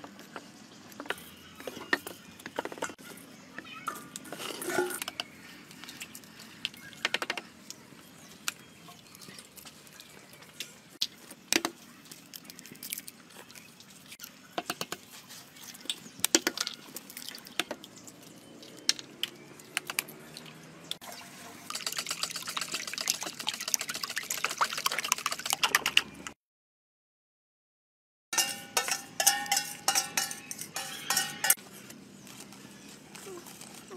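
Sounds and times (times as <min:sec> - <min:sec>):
eggs beaten in metal bowl: 0:21.1 - 0:26.0, 0:28.4 - 0:31.6
eggs tapping on steel bowl: 0:28.4 - 0:31.6.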